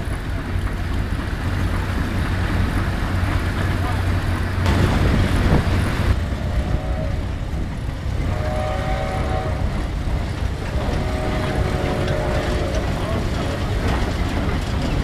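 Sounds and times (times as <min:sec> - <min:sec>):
steam traction engine rumbling: 0:00.0 - 0:15.0.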